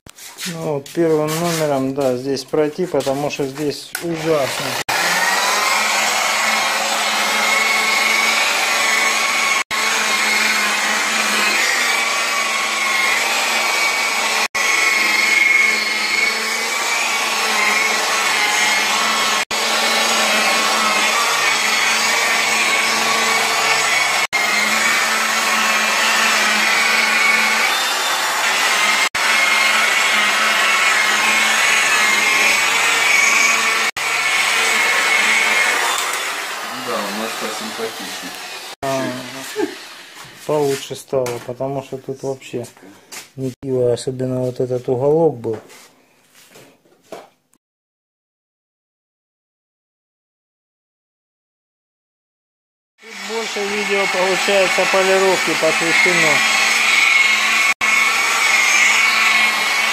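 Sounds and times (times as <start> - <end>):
electric polisher motor whining: 3.9 - 40.8, 53.0 - 59.9.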